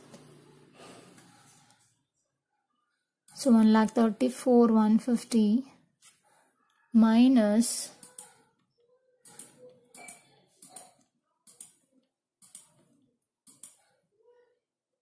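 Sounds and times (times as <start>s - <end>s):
computer mouse clicks: 8.0s - 8.6s, 9.2s - 13.9s.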